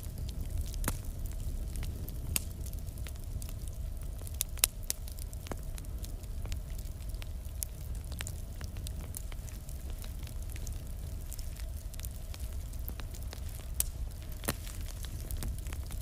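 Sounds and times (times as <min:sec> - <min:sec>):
fire crackling: 0:00.0 - 0:16.0
low rumble of flames: 0:00.0 - 0:16.0.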